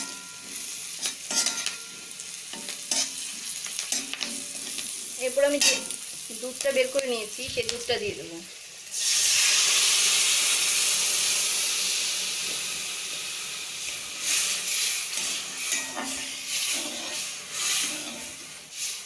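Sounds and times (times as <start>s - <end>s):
metal spatula scraping a pan: 0.0s - 6.0s, 14.2s - 19.0s
liquid sizzling in hot oil: 0.0s - 19.0s.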